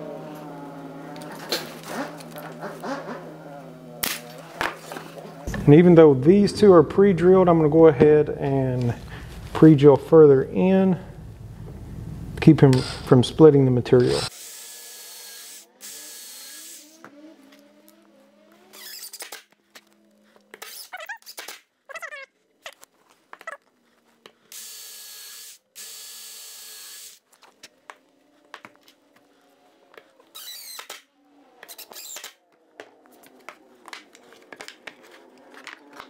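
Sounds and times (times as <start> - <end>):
drill boring into wood: 14.0 - 16.9, 24.5 - 27.2.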